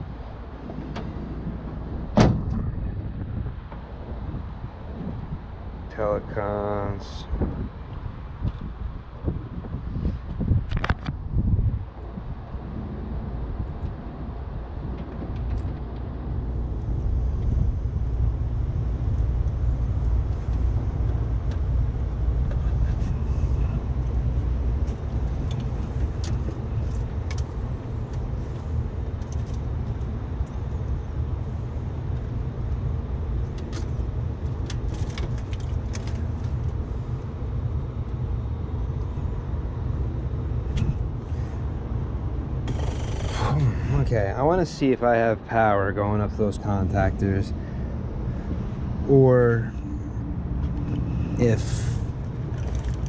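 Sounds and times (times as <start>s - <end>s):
air conditioner compressor hum: 0.0s - 10.7s, 11.3s - 53.0s
small clicks and rattles: 33.5s - 36.8s, 52.4s - 53.0s.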